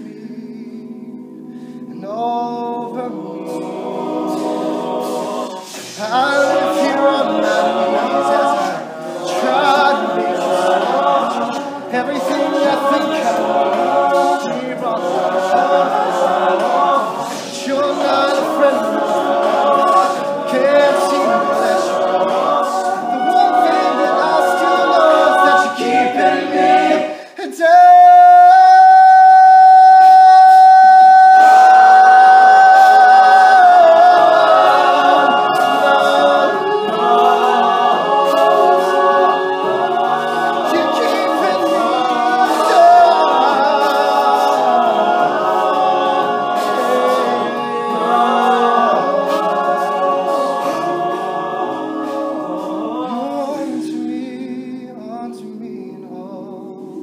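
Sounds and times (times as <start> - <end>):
male a cappella group singing: 0.0 - 57.0.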